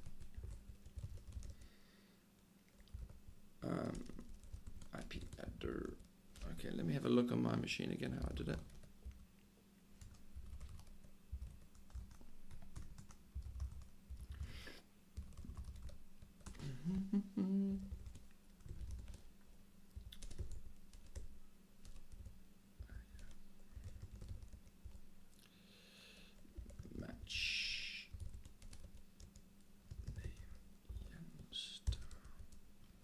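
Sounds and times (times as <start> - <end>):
laptop keyboard typing: 0.0 - 1.7, 2.8 - 6.6, 8.1 - 9.2, 10.0 - 16.6, 17.9 - 19.3, 20.0 - 25.1, 26.2 - 27.0, 28.1 - 31.1, 31.8 - 32.6.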